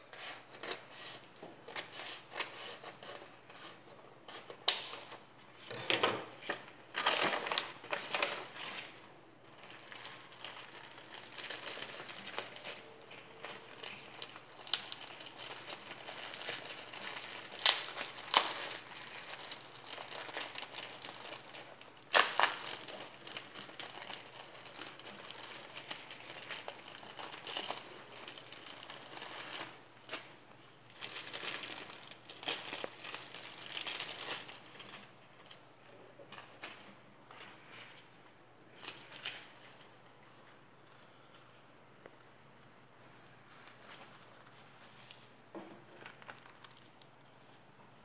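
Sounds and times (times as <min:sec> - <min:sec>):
plastic bags crinkling: 0:06.3 - 0:35.7.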